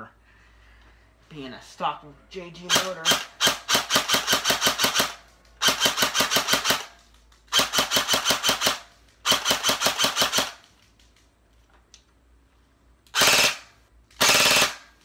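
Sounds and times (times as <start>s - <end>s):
airsoft gun rapid fire bursts: 2.6s - 10.7s, 13.1s - 15.0s.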